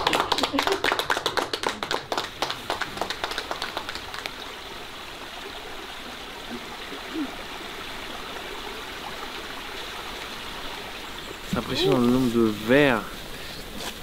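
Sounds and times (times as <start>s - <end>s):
hand clapping: 0.0s - 4.3s
running water hiss: 2.1s - 14.0s.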